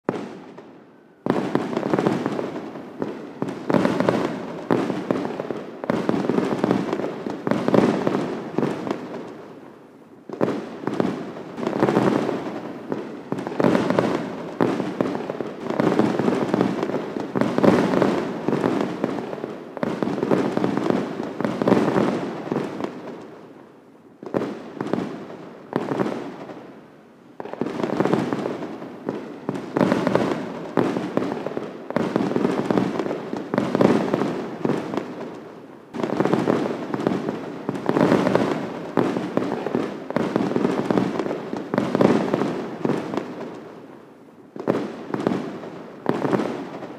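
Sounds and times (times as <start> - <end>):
fireworks bangs and crackling: 0.0 - 46.9.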